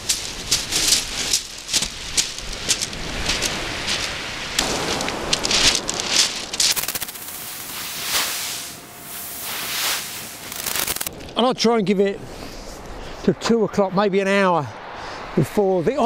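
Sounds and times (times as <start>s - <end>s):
pebbles rattling: 0.0s - 8.0s, 10.4s - 11.1s
waves on shingle beach: 0.0s - 11.1s
pebbles crackling and hissing: 0.0s - 11.4s.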